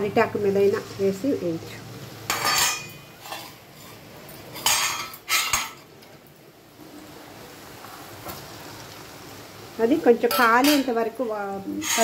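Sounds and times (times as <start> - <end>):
metal plates and utensils clanking: 2.3 - 5.9, 10.3 - 11.0, 11.7 - 12.0.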